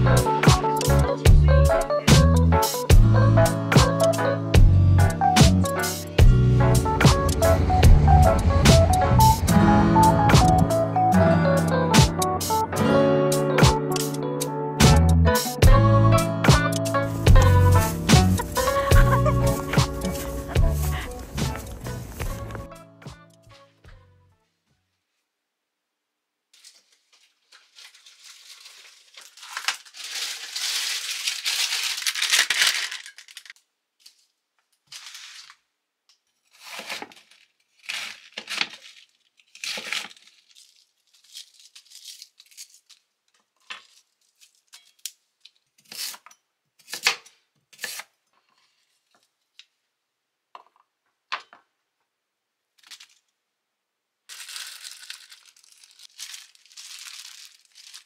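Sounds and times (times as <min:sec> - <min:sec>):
crinkly material tearing: 0:16.9 - 0:22.6, 0:26.6 - 0:34.3, 0:36.4 - 0:46.2, 0:54.3 - 0:58.0.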